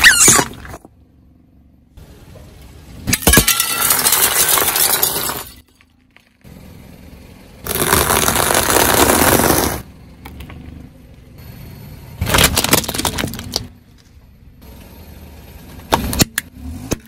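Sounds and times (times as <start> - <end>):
car tyre rolling on asphalt: 3.8 - 16.9.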